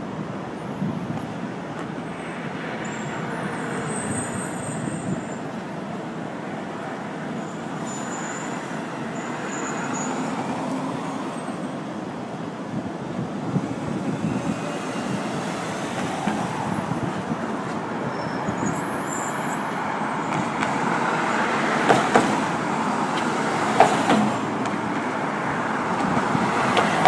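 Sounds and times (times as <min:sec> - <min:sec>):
city street traffic: 0:00.0 - 0:27.0.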